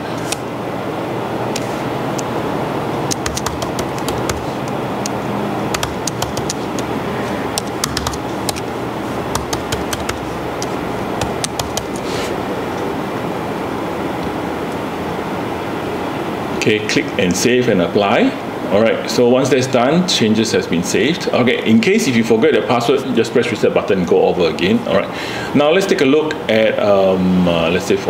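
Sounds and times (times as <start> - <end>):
steady background noise: 0.0 - 28.0
keyboard keys clicking: 3.1 - 6.9, 7.6 - 8.7, 9.3 - 12.0.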